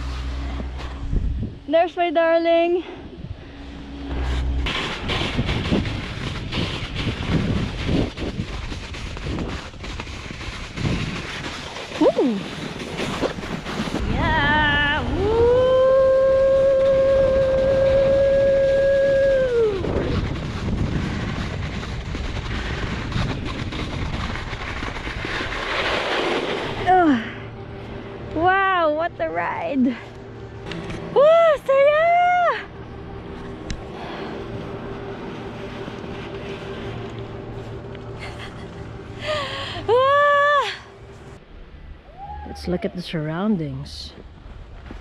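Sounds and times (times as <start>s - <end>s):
boards scraping over snow: 0.0s - 2.8s, 3.8s - 32.5s, 33.1s - 41.4s
wind buffeting microphone: 0.0s - 26.0s
siren-like tone dropping in pitch: 3.1s - 5.1s.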